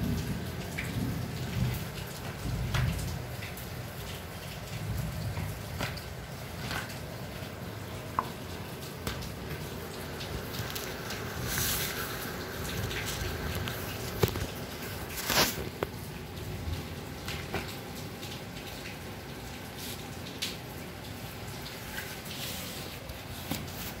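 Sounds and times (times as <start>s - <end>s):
kittens tapping and scuffing: 21.9s - 24.0s.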